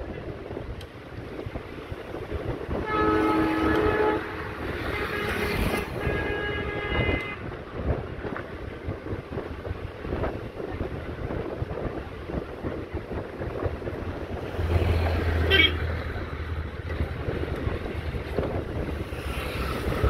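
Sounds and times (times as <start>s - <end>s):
wind rumbling on microphone: 0.0s - 20.0s
locomotive horn blasts: 2.8s - 7.5s, 15.4s - 15.9s.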